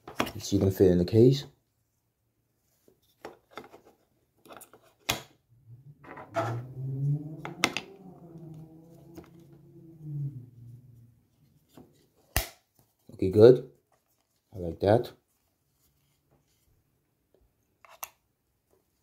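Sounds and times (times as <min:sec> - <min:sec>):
man humming low note: 0:05.6 - 0:11.3.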